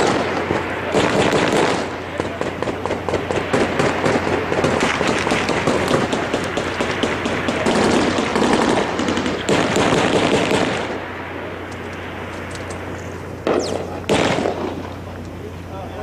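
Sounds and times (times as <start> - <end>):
rifle and machine-gun fire: 0.0 - 11.1, 13.4 - 15.0.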